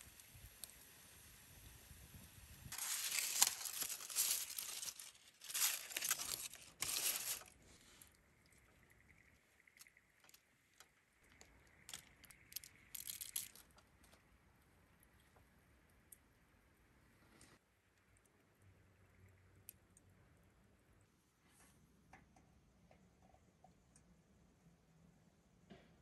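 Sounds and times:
crinkling rustling: 2.7s - 8.1s, 9.1s - 14.2s.

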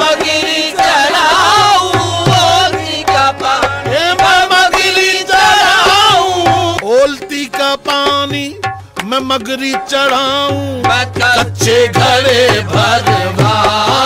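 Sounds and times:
tabla drumming: 0.0s - 14.0s.

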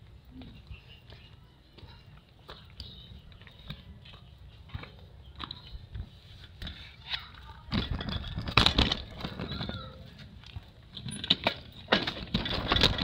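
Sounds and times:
footsteps crunching on stony path: 0.0s - 7.0s.

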